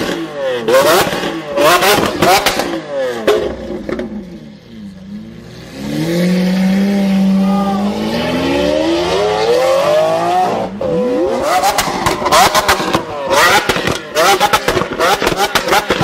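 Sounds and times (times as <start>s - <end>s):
car engine accelerating in tunnel: 4.6s - 16.0s.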